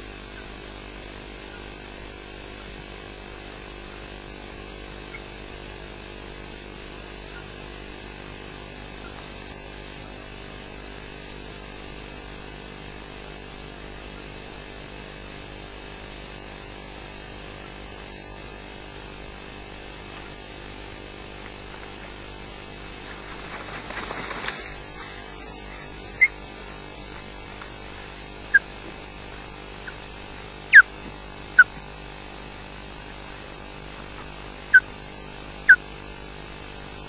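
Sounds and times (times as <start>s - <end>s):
electrical hum and hiss: 0.0s - 37.0s
brief rustle: 23.0s - 25.3s
osprey call: 23.6s - 26.5s, 30.7s - 31.0s.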